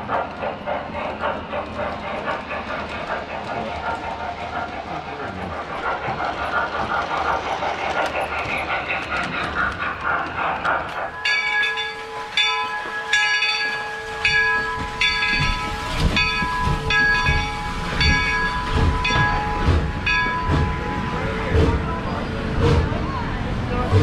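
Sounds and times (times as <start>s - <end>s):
locomotive bell ringing: 11.1s - 22.4s
low rhythmic thumping: 11.2s - 21.9s.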